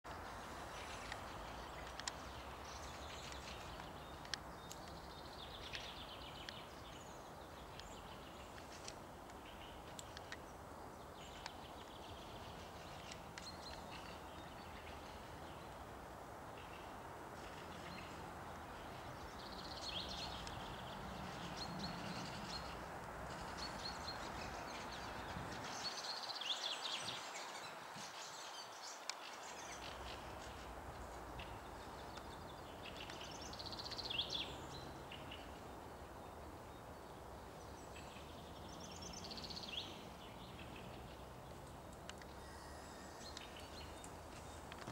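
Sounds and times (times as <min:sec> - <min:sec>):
songbirds chirping: 0:00.0 - 0:44.9
steady hiss: 0:41.5 - 0:44.9.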